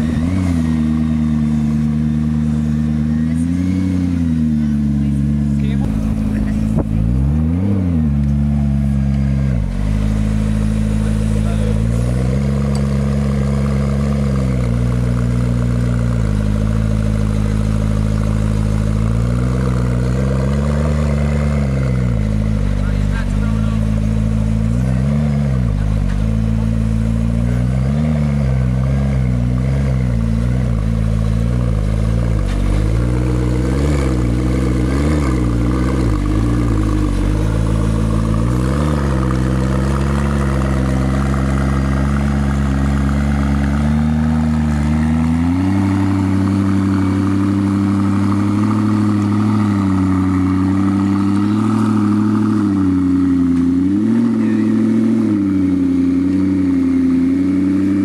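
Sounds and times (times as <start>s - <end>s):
car engine idling with throttle blips: 0.0s - 58.0s.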